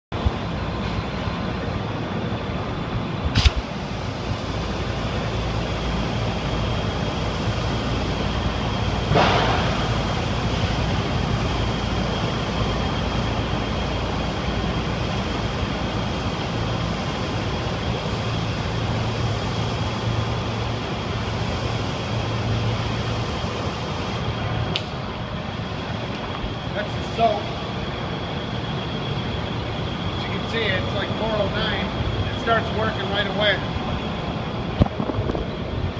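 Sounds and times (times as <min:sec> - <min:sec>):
sharp click: 0:03.3 - 0:03.6.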